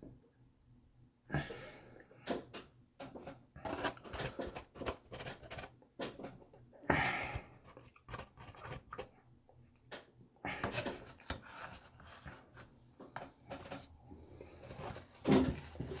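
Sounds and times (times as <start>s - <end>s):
plastic fork scraping foam container: 3.2s - 6.3s, 7.3s - 9.2s, 10.5s - 12.7s, 13.5s - 16.0s.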